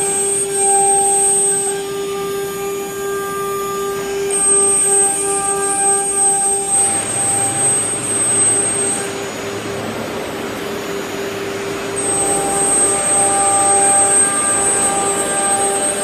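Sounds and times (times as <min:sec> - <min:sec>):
router spindle whining: 0:00.0 - 0:16.0
bit cutting through wood: 0:11.8 - 0:16.0.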